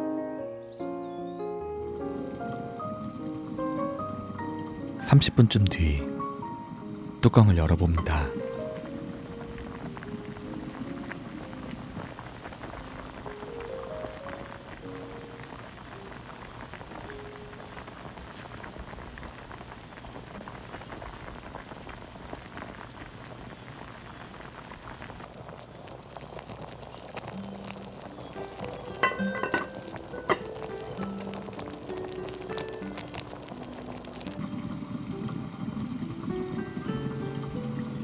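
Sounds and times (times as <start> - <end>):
music with slow held notes: 0.0 - 7.2, 8.0 - 17.8, 27.3 - 38.0
food bubbling and sizzling in a pot: 8.1 - 38.0
glass pot lid clinking: 28.6 - 31.0.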